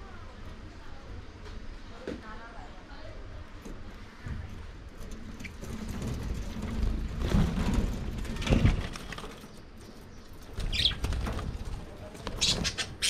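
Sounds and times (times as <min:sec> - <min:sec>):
budgerigars calling: 0:10.7 - 0:11.0, 0:12.4 - 0:13.0.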